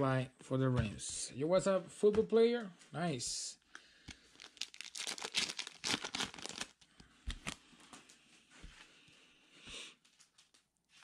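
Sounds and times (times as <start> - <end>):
trading cards slapping and rustling: 4.0 - 7.6.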